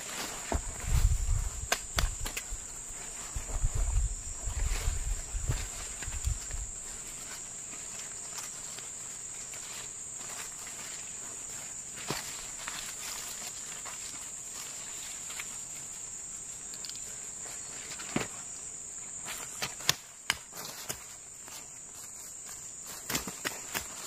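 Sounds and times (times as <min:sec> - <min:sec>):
insects chirring: 0:00.0 - 0:24.0
plant stems snapping: 0:01.6 - 0:02.5.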